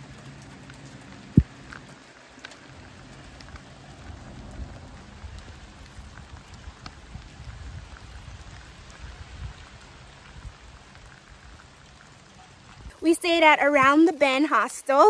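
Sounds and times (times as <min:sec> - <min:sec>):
light rain drops ticking: 0:00.0 - 0:15.0
low rumble: 0:03.0 - 0:08.5.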